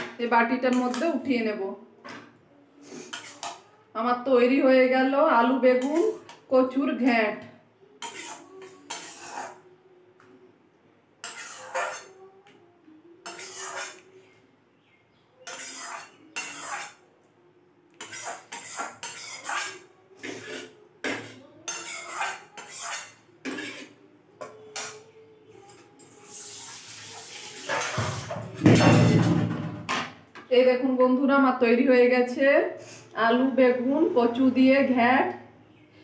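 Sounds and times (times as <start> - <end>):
metal spatula scraping a pot: 0.6 - 1.2, 2.8 - 3.7, 5.8 - 6.5, 8.0 - 9.7, 11.2 - 12.3, 13.2 - 14.2, 15.4 - 17.1, 18.0 - 28.9.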